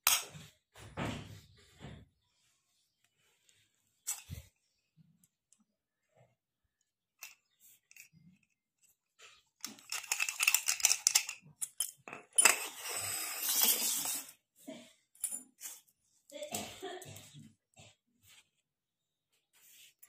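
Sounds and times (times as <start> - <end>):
padlock clicking and rattling: 9.6 - 12.0.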